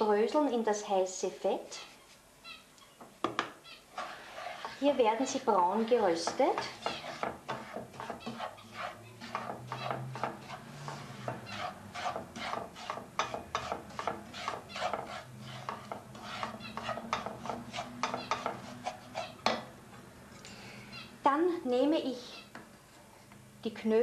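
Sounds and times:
wooden spoon scraping frying pan: 0:03.9 - 0:19.6.

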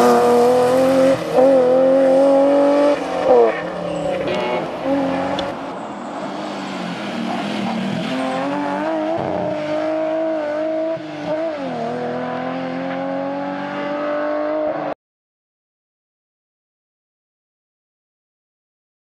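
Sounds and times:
rally car engine revving hard: 0:00.0 - 0:05.5, 0:06.7 - 0:15.0.

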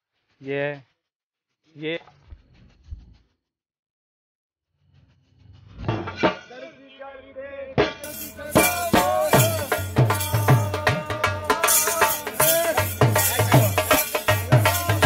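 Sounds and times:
barrel drum fast rhythm: 0:08.0 - 0:15.0.

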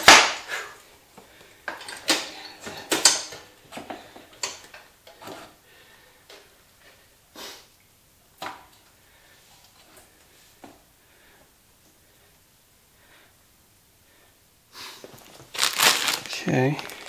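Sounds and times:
tools clanking and knocking: 0:01.7 - 0:05.5.

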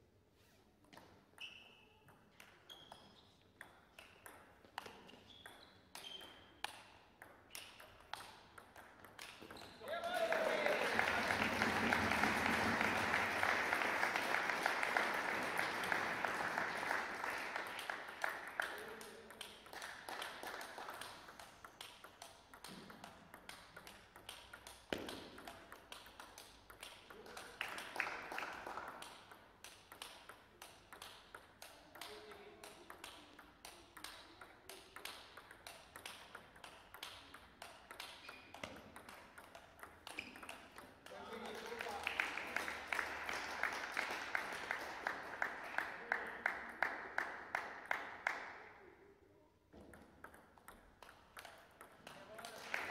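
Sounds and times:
people clapping: 0:08.8 - 0:22.7, 0:24.2 - 0:35.3, 0:40.0 - 0:48.9, 0:50.8 - 0:52.9
table tennis ball clicks: 0:49.8 - 0:52.2.

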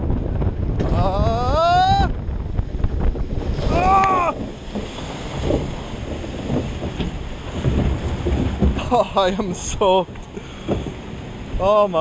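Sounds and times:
water rushing and splashing: 0:00.0 - 0:12.0
wind buffeting microphone: 0:00.0 - 0:12.0
rider whooping: 0:00.8 - 0:02.2, 0:03.6 - 0:04.5.

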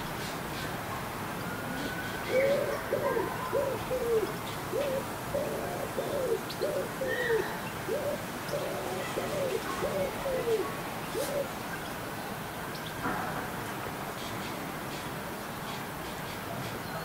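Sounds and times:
wood pigeon cooing: 0:01.7 - 0:11.6
small birds chirping: 0:02.3 - 0:13.0.

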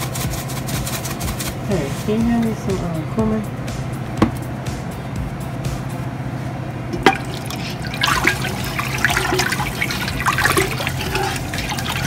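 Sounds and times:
steady low hum: 0:00.0 - 0:12.0
sharp knock: 0:04.2 - 0:04.4
spoon stirring liquid in pot: 0:07.0 - 0:12.0.

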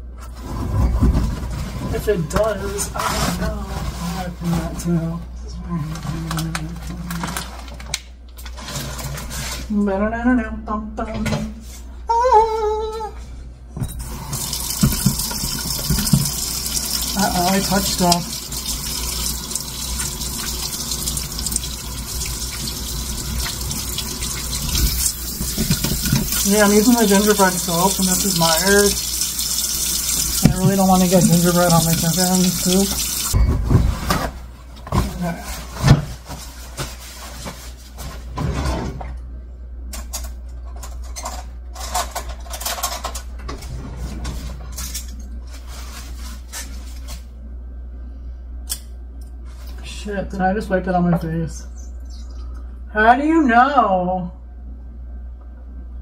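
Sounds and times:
tap running into sink: 0:14.3 - 0:21.7, 0:22.5 - 0:26.6, 0:28.9 - 0:33.4
hands washing under water: 0:14.3 - 0:33.4.

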